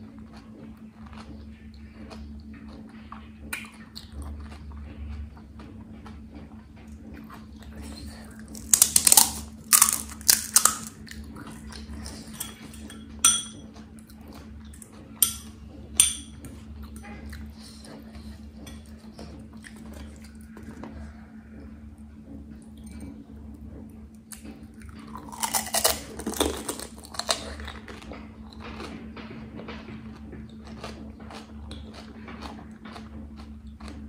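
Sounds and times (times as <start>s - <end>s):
crisp shells crackling: 8.5s - 11.0s
metal fork clinking on dish: 12.3s - 13.7s, 15.2s - 17.0s.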